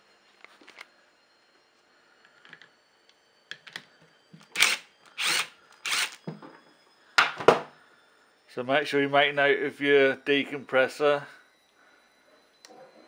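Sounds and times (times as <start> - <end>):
cordless driver bursts: 4.5 - 6.2.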